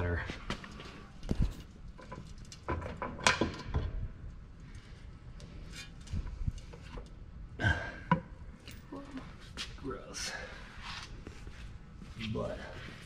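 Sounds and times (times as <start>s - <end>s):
metal clanks and knocks: 1.4s - 4.1s.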